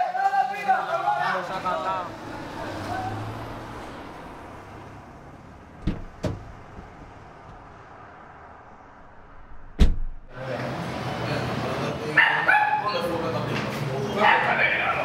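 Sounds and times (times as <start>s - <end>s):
car door slamming shut: 5.8s - 6.9s, 9.7s - 10.2s
knocks on car door: 5.8s - 6.9s, 9.8s - 10.2s.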